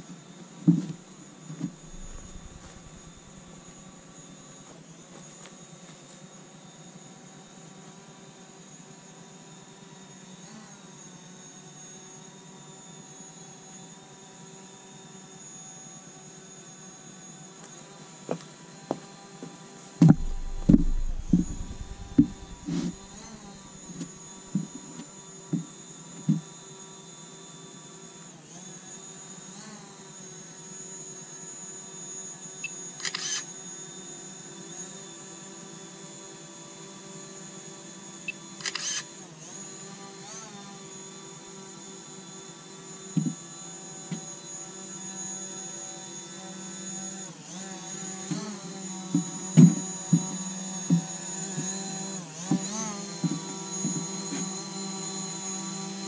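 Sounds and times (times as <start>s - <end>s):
low thumps: 1.7s - 3.7s, 20.0s - 23.7s
drone propellers buzzing: 1.7s - 4.2s, 20.0s - 24.7s.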